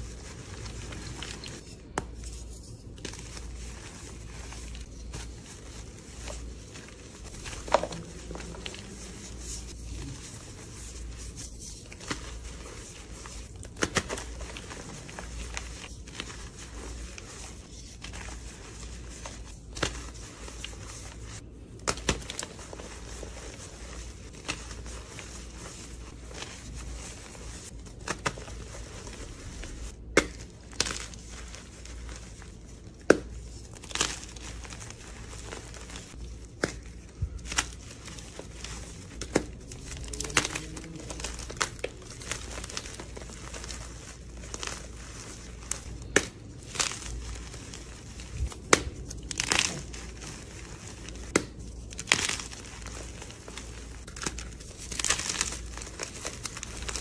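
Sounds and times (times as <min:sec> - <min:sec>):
chalk blocks crunching and crumbling: 0:00.0 - 0:57.0.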